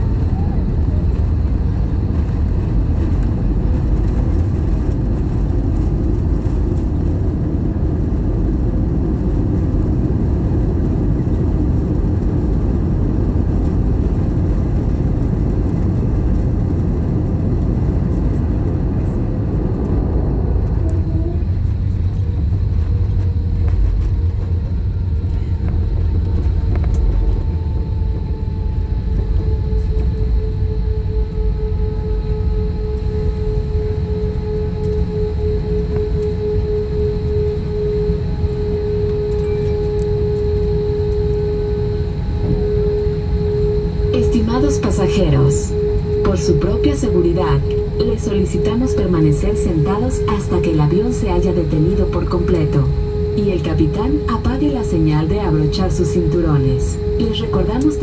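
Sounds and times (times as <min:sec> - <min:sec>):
aircraft cabin rumble: 0:00.0 - 0:58.0
faint whining tones: 0:00.0 - 0:58.0.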